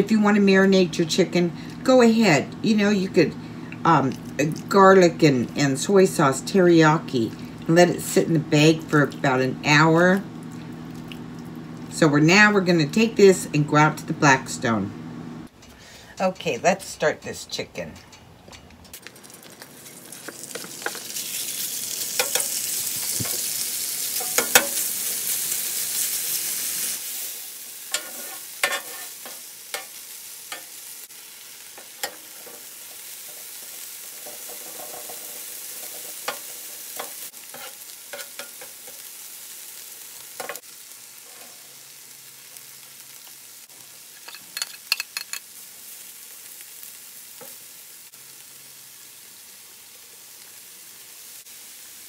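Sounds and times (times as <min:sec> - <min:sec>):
chicken sizzling on a griddle: 0:18.9 - 0:52.0
metal spatula scraping griddle: 0:27.9 - 0:30.8, 0:31.8 - 0:39.0, 0:41.2 - 0:41.8.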